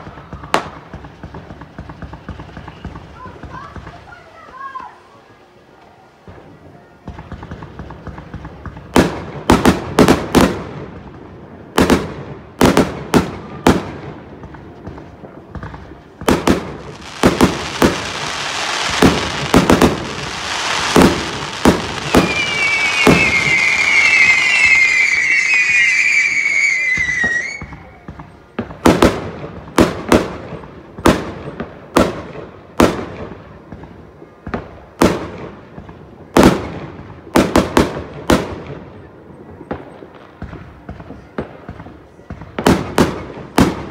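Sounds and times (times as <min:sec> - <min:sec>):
firework bangs: 0:00.0 - 0:05.0, 0:06.2 - 0:43.9
rising firework hiss: 0:14.8 - 0:28.4
shrill falling whistles: 0:21.9 - 0:28.0.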